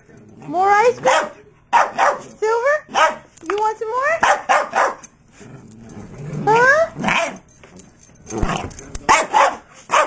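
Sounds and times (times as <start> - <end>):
dog barking and yelping: 2.9 - 3.3, 4.2 - 5.1, 9.1 - 10.0.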